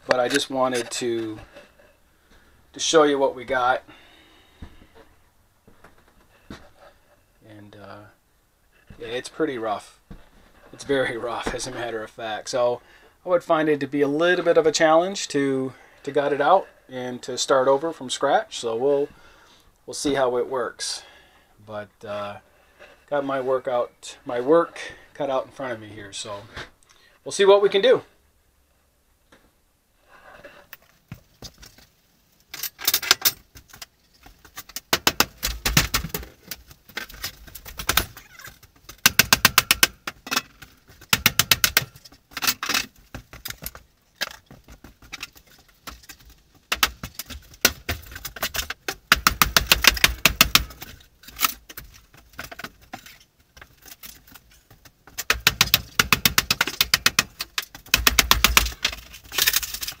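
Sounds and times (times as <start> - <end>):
wall paneling clattering being torn out: 32.7 - 60.0.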